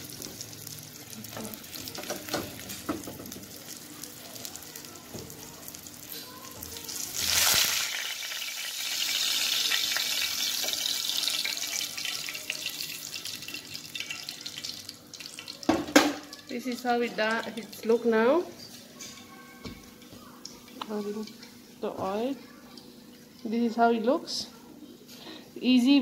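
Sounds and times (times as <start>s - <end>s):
oil sizzling in a frying pan: 0.0s - 24.4s.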